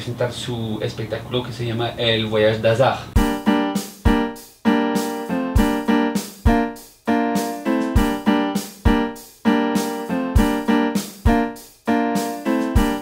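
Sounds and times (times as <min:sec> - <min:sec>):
piano chords: 0:03.2 - 0:13.0.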